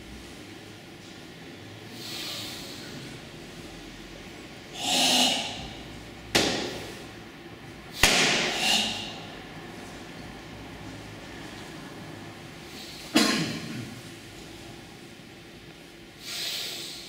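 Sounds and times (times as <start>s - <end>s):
forceful hissing exhalations: 1.9s - 3.0s, 8.4s - 9.2s, 16.2s - 17.0s.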